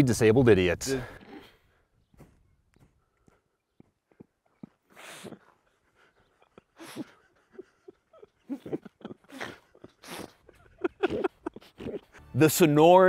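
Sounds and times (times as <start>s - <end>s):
men laughing: 5.4s - 12.5s.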